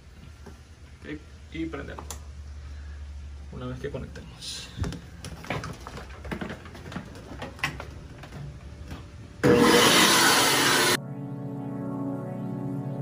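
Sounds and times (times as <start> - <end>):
vacuum blowing air: 9.4 - 11.0
background music: 9.5 - 13.0.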